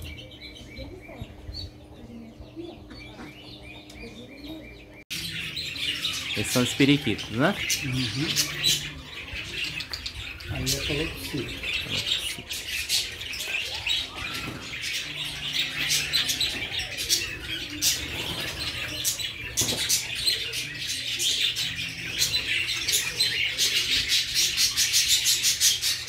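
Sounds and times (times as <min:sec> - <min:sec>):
budgerigars and cockatiels chattering: 0:00.0 - 0:26.0.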